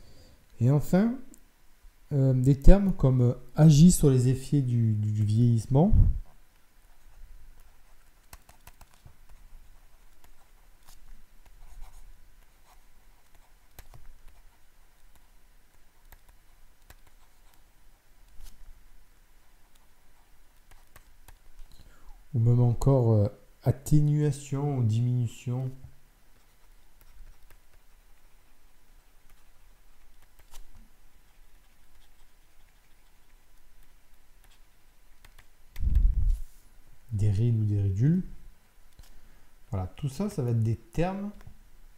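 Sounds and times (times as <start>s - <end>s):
low steady hum: 0.0s - 41.9s
stylus scratching on tablet: 6.8s - 18.7s, 19.4s - 21.7s, 25.0s - 35.6s.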